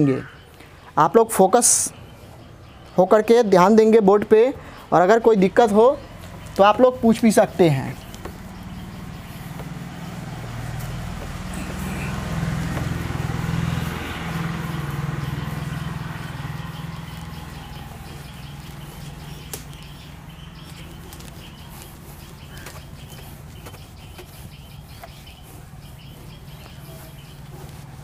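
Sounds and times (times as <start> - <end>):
low engine drone: 7.8 - 28.0.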